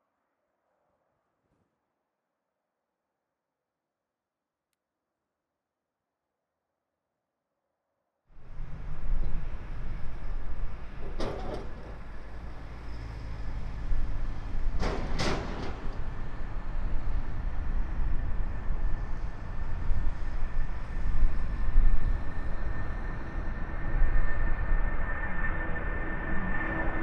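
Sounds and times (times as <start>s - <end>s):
jet engine rumble and whine: 8.4s - 27.0s.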